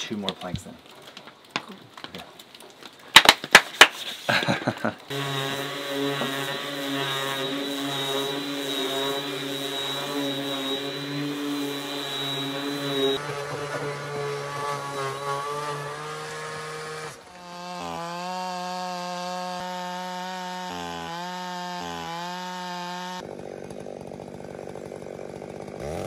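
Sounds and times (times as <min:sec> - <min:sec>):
hand claps: 0:03.2 - 0:04.0
orbital sander on wood: 0:04.3 - 0:26.0
power tool motor rising pitch: 0:05.1 - 0:26.0.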